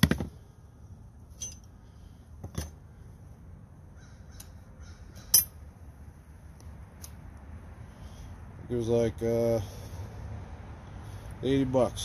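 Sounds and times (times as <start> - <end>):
metal clink of wrench on bits: 1.4 - 1.7.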